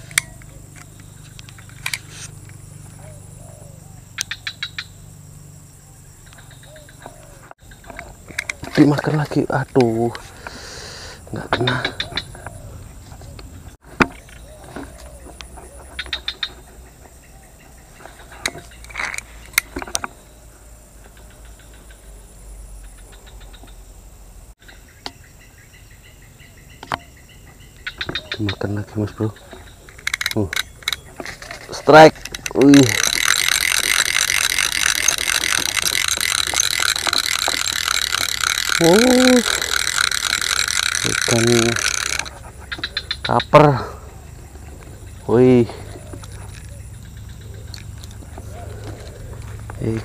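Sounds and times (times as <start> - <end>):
fishing pole clicks: 7.8 - 10.2, 29.9 - 43.2.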